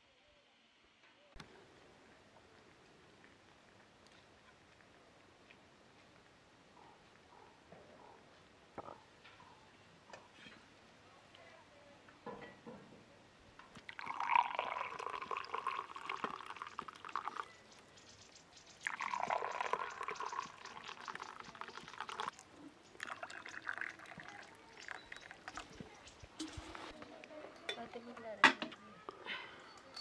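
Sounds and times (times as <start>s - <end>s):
tea pouring into glass: 13.8s - 17.6s, 18.8s - 26.7s.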